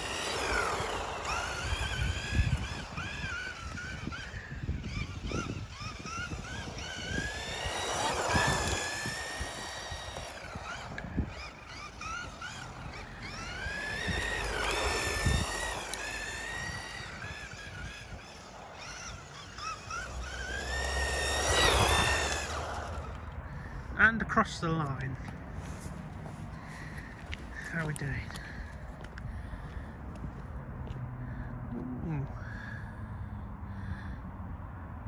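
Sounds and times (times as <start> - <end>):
rc car electric motor whine: 0.0 - 23.8.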